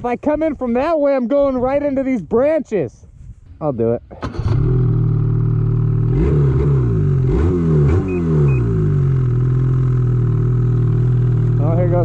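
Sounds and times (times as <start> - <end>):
engine throttle blips: 4.1 - 12.0
snowmobile engine idling: 8.5 - 12.0.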